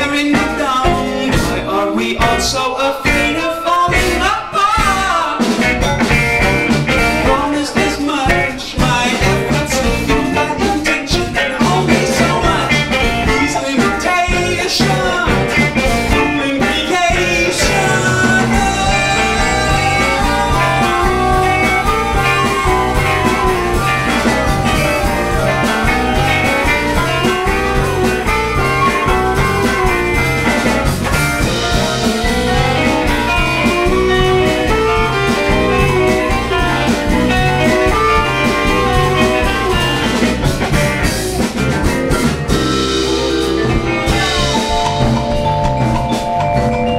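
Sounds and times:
bass: 0:00.0 - 0:46.9
drums: 0:00.0 - 0:46.9
guitar: 0:00.0 - 0:46.9
melody line: 0:42.5 - 0:46.9.

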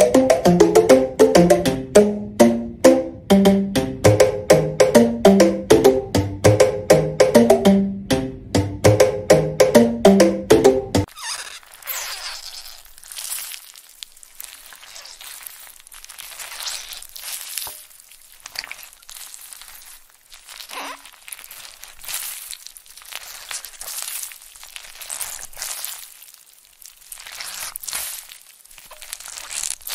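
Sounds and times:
foam squeaks: 0:11.1 - 0:17.8, 0:18.5 - 0:26.1
milk foam crackling and squishing: 0:11.1 - 0:29.9.

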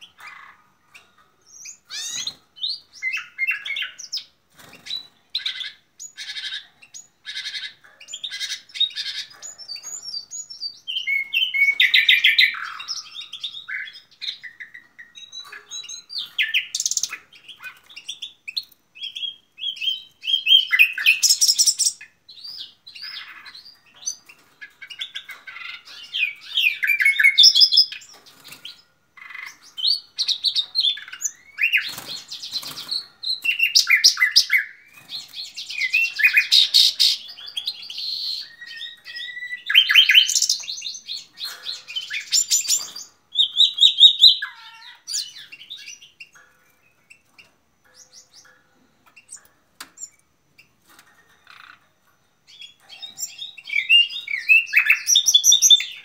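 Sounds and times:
nightingale singing: 0:00.0 - 0:56.0.

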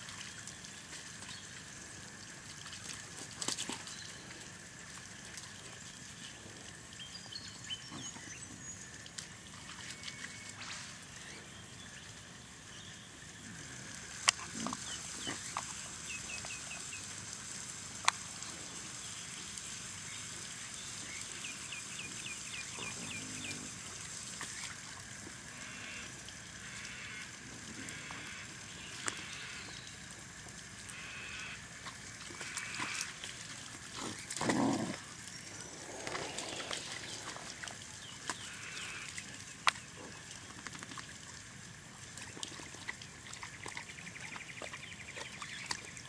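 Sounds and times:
steady hiss: 0:10.5 - 0:40.0.

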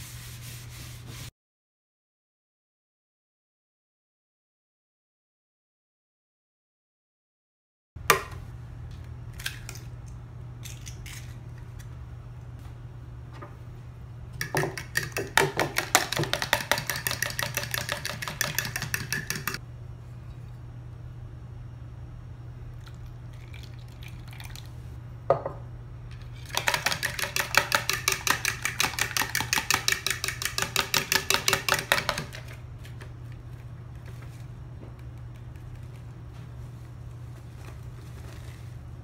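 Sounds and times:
spoon beating eggs in bowl: 0:14.4 - 0:19.6, 0:26.2 - 0:32.6.

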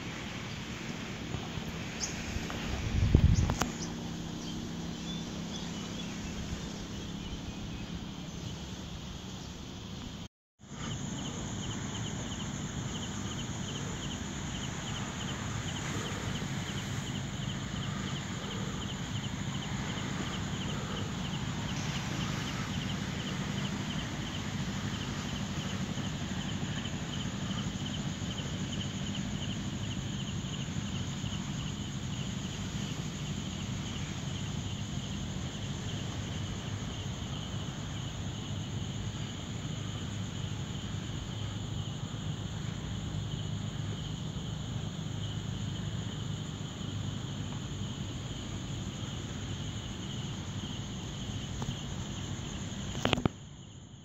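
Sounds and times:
crickets chirping: 0:00.0 - 0:54.0.

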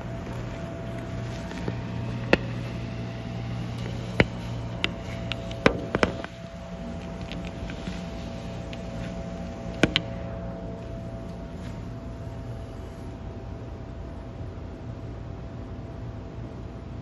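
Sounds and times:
low machine hum: 0:00.0 - 0:17.0
sharp irregular clicks: 0:00.2 - 0:10.1.

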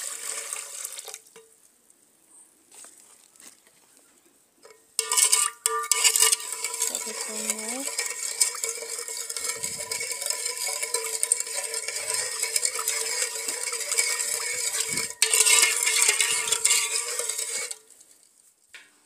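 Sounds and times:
metal spoon stirring in a pot: 0:04.6 - 0:18.2.

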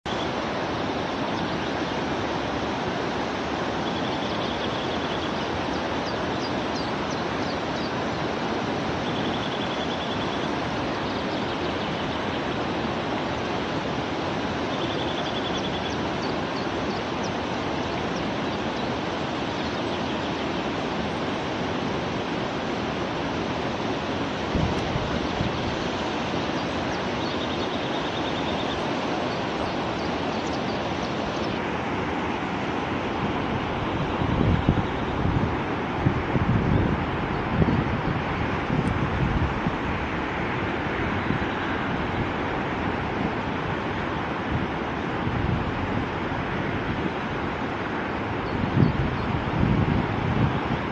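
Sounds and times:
steady rushing noise: 0:00.1 - 0:50.9
thin bird chirps: 0:03.8 - 0:08.0, 0:09.0 - 0:12.6, 0:14.6 - 0:21.2
bird trills: 0:09.0 - 0:12.5, 0:14.6 - 0:20.6.

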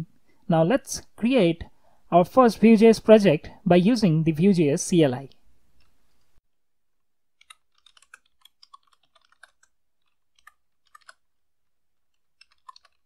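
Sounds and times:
typing on computer keyboard: 0:07.4 - 0:11.2, 0:12.4 - 0:13.0.

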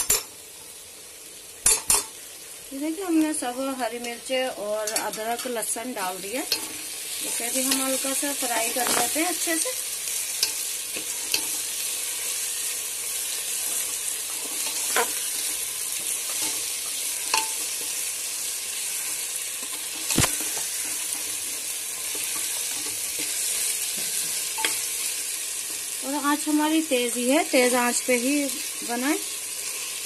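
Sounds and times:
vegetables sizzling in hot oil: 0:00.0 - 0:30.0
steel ladle clacking against pot: 0:17.3 - 0:17.7.

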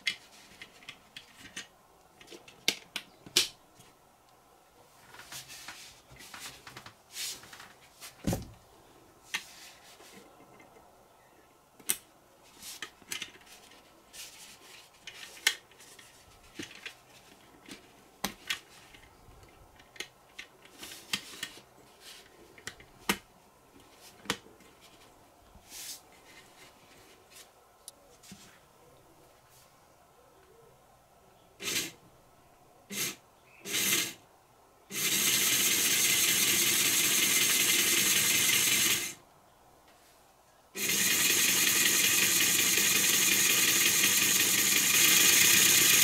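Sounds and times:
light rubbing of plastic: 0:04.9 - 0:08.6, 0:12.4 - 0:19.2, 0:23.8 - 0:28.6.

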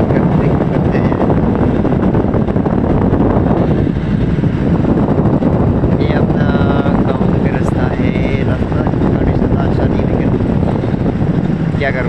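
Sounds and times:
pickup truck rumbling: 0:00.0 - 0:12.0
wind buffeting microphone: 0:00.0 - 0:12.0.

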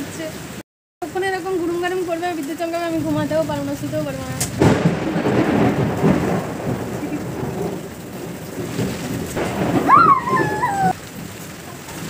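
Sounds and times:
heavy rain pouring: 0:00.0 - 0:12.0
thunder rumbling: 0:02.9 - 0:12.0
high voice: 0:09.9 - 0:11.0.

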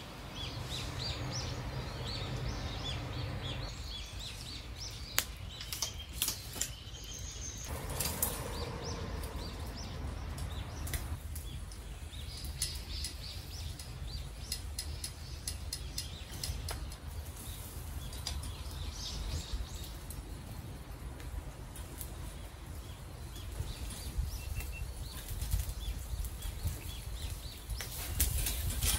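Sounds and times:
wild birds chirping: 0:00.0 - 0:21.0, 0:21.7 - 0:28.9
steady low rumble: 0:07.7 - 0:12.6.

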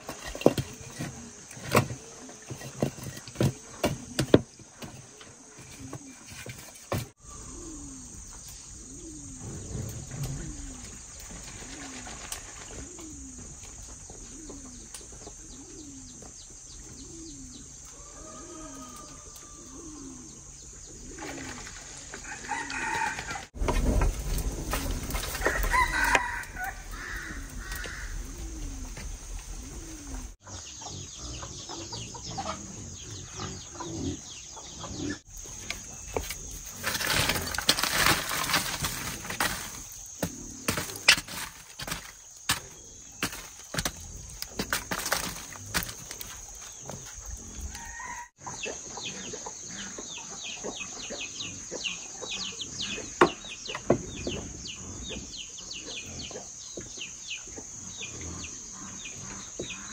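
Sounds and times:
rooster crowing: 0:17.9 - 0:19.8, 0:22.2 - 0:23.6, 0:25.4 - 0:28.1, 0:47.7 - 0:48.4
chickens clucking: 0:24.4 - 0:42.0, 0:44.7 - 0:59.9.

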